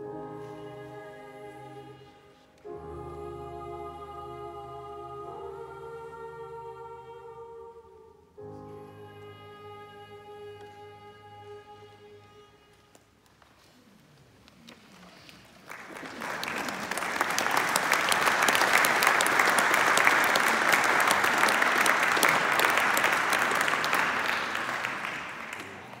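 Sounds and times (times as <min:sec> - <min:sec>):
audience applauding: 0:15.1 - 0:26.0.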